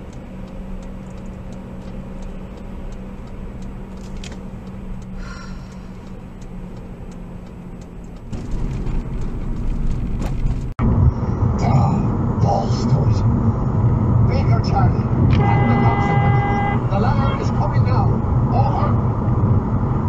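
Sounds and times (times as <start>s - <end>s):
turn signal ticking: 0.0s - 10.8s, 13.8s - 18.5s
car cabin hum: 0.0s - 11.0s, 11.6s - 18.7s
low rumble: 8.2s - 16.9s.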